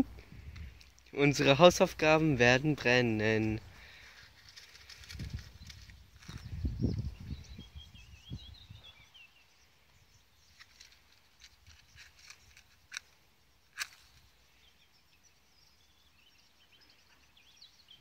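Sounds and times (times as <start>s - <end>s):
matches striking: 10.5s - 14.3s.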